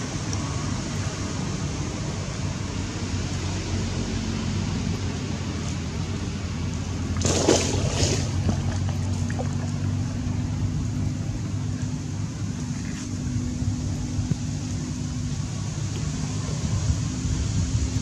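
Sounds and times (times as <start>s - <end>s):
low engine drone: 0.0s - 18.0s
water splashing: 7.1s - 10.3s.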